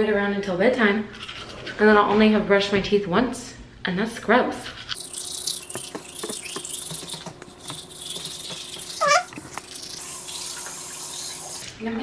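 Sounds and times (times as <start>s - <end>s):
toothbrush scrubbing teeth: 4.7s - 11.6s.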